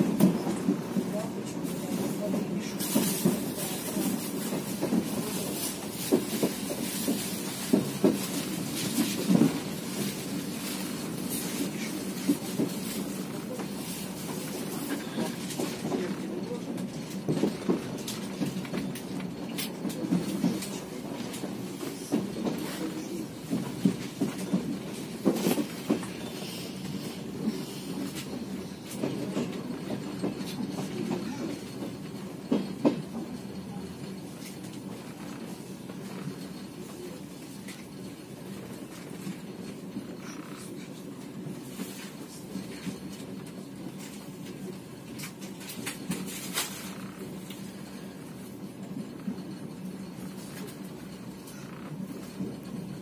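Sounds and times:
train rumbling on rails: 0.0s - 53.0s.

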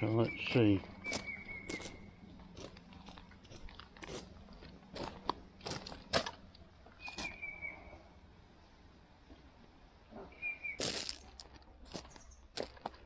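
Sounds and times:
footsteps on rocky trail: 0.7s - 7.6s, 10.8s - 13.0s.

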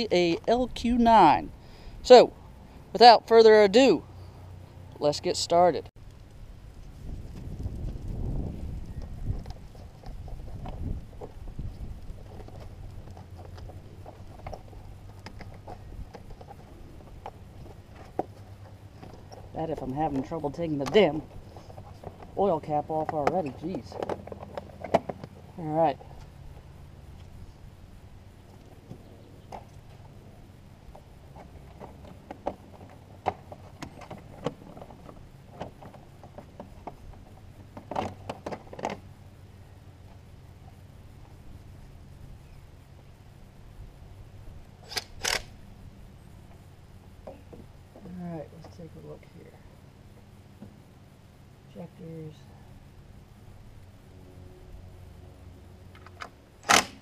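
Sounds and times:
steady low rumble: 0.0s - 37.7s.

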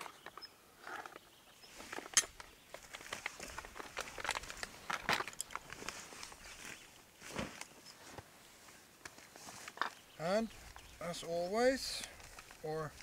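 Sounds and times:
camping gear clicks and knocks: 0.0s - 11.0s, 11.9s - 13.0s
nylon sack rustling: 2.8s - 8.6s.

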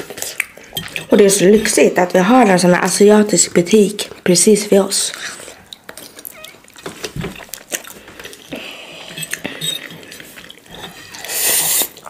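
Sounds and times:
noodle slurp: 7.9s - 12.0s.

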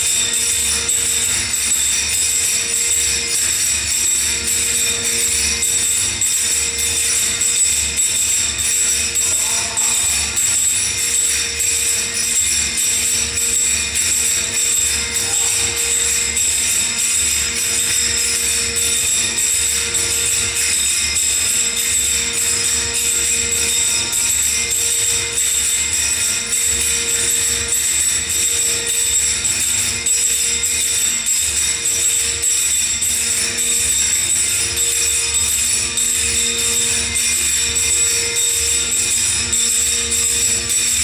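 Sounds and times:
tambourine-like percussion: 0.0s - 41.0s
dance music: 9.1s - 10.8s, 15.0s - 17.0s.

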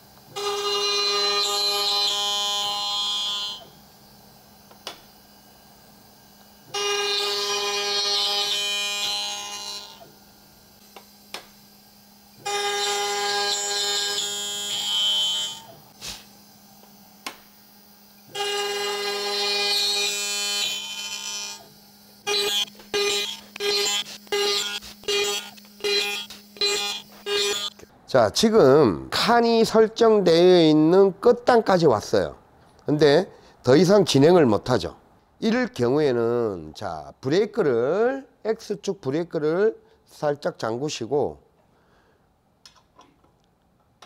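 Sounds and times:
machine spindle whining while cutting wood: 0.2s - 3.8s, 6.6s - 10.3s, 10.9s - 27.8s.

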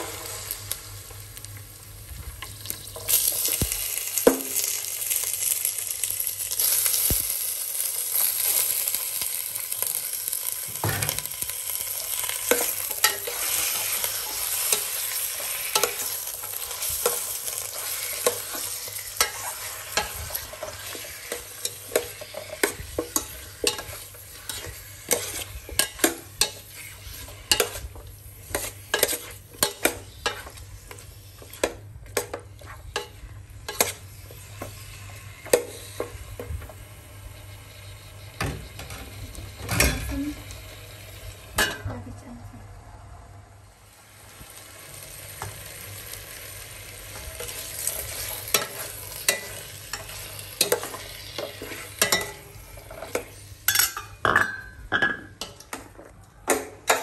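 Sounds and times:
meat sizzling: 0.0s - 42.0s, 43.8s - 54.2s
spoon clinking and scraping pot: 12.2s - 34.0s, 47.4s - 57.0s.

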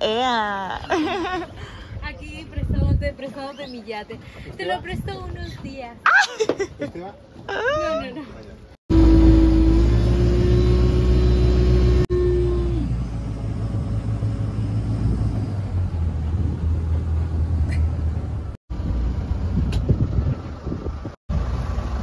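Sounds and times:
motorboat engine drone: 8.9s - 17.6s.

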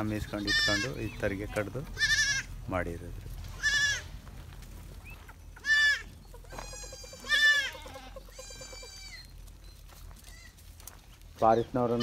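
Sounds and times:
goats bleating: 0.2s - 2.6s, 3.5s - 4.1s, 5.6s - 9.3s.

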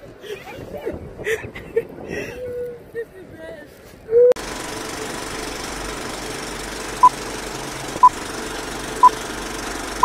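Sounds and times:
film projector clatter: 4.4s - 10.0s.

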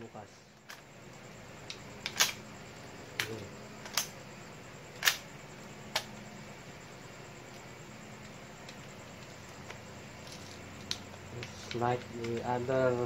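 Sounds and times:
airsoft rifle clicks: 1.6s - 2.4s, 3.1s - 4.2s, 5.0s - 5.2s, 5.9s - 6.1s.

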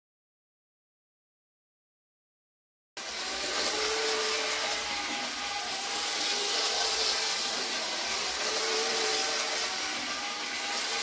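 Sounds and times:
model train motor whirring: 3.0s - 11.0s.

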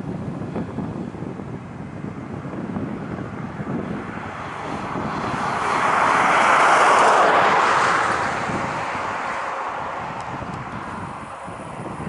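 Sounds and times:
jet engine roar: 2.5s - 12.0s.

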